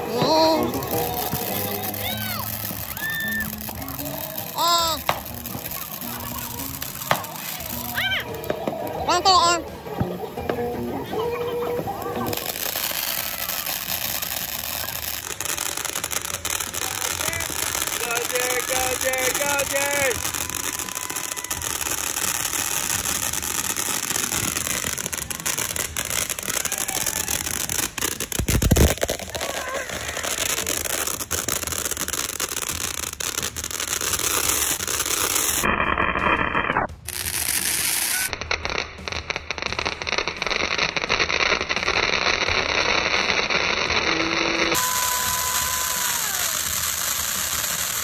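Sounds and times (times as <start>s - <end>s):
fireworks hissing and crackling: 0.0s - 48.0s.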